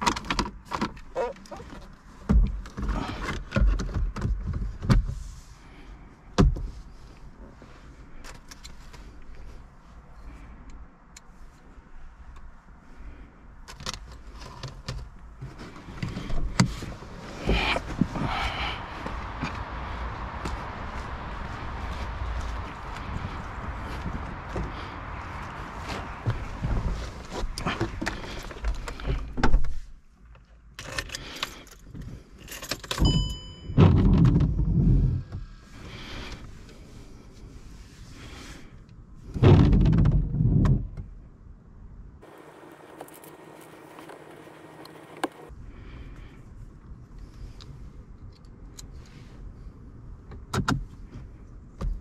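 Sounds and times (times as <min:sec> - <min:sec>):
clothes and seat rustling: 0:00.0 - 0:05.6, 0:06.6 - 0:10.6, 0:13.8 - 0:30.2, 0:42.2 - 0:45.5
short electronic beep: 0:33.0 - 0:33.8.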